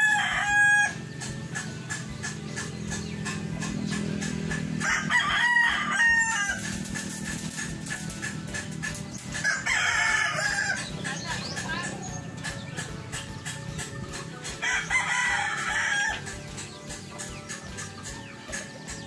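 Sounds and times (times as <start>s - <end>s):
rooster crowing: 0.0s - 1.0s, 4.8s - 6.8s, 9.4s - 10.9s, 14.6s - 16.3s.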